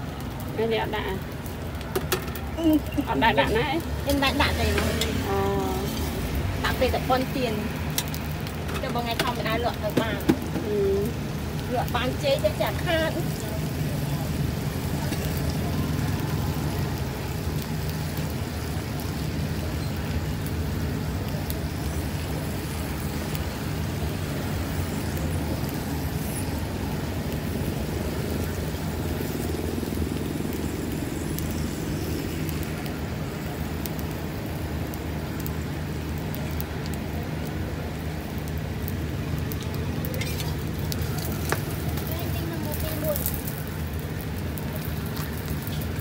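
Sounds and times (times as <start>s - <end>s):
food frying on a griddle: 0.0s - 46.0s
traffic noise: 0.0s - 46.0s.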